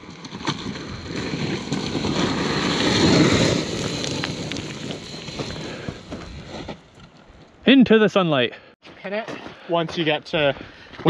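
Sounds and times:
electric dirt bike rushing: 0.0 - 7.5
faint high whine: 1.8 - 6.6.

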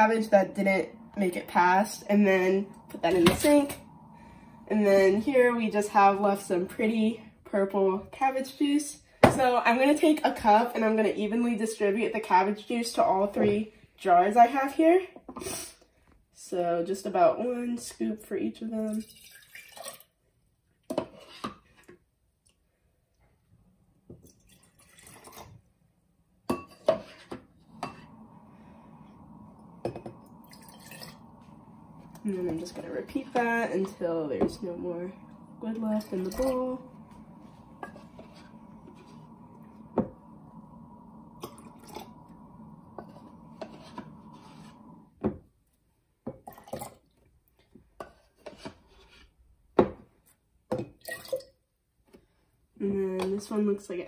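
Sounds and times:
faint steady hum: 0.0 - 15.1, 26.1 - 45.4
liquid pouring into glass jar: 18.9 - 20.1, 24.2 - 25.4, 29.5 - 32.2, 51.0 - 51.5.

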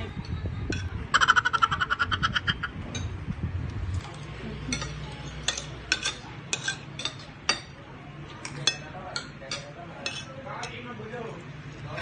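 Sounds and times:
cutlery clinking on a plate: 4.7 - 7.8, 8.4 - 10.8.

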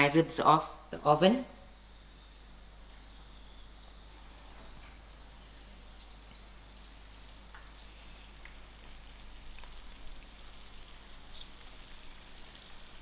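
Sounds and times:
meat sizzling in a tray: 4.2 - 13.0.

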